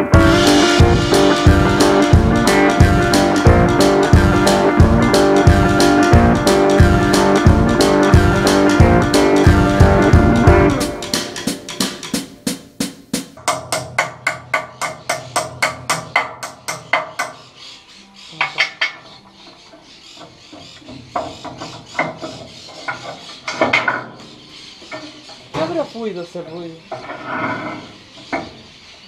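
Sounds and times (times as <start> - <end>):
guitar music: 0.0 - 12.8
hammer striking metal: 13.4 - 17.4.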